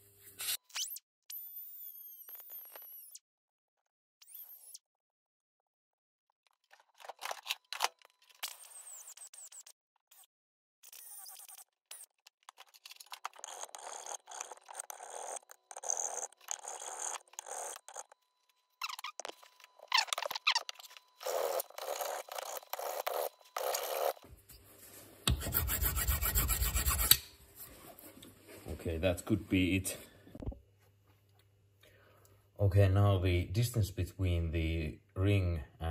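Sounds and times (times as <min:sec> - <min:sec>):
hand file rasping on metal: 0:25.3 - 0:27.2.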